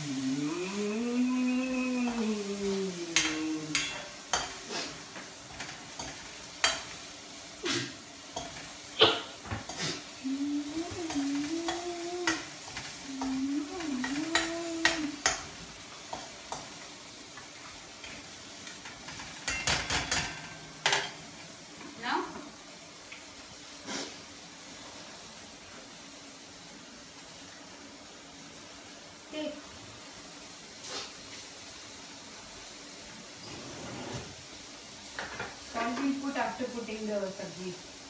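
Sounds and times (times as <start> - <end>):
onions frying sizzle: 0.0 - 38.0
spatula clicking against pan: 14.0 - 15.5.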